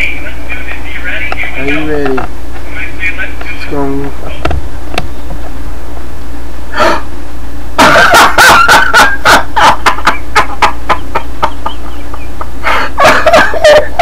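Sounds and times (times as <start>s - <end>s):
man laughing hard: 7.8s - 14.0s.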